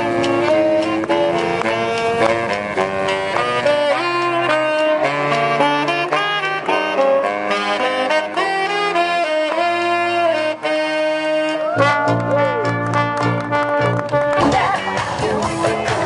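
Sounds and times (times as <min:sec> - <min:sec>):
brass band playing through pa: 0:00.0 - 0:16.0
sousaphone bass line: 0:11.7 - 0:16.0.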